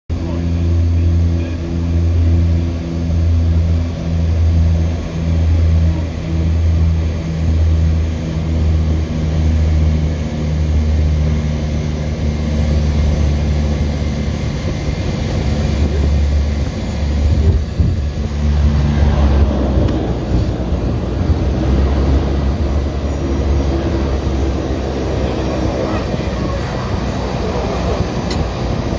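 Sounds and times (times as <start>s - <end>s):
propeller engines droning: 0.1s - 28.9s
rushing air noise: 11.3s - 28.9s.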